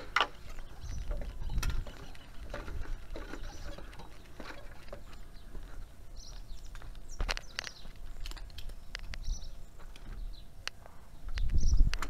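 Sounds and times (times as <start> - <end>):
boots stepping on ladder rungs: 0.0 - 8.5.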